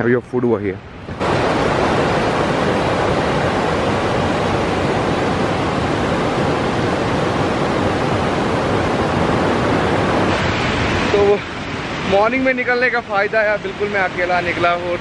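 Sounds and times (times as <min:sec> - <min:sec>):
stream rushing over boulders: 0:00.9 - 0:15.0.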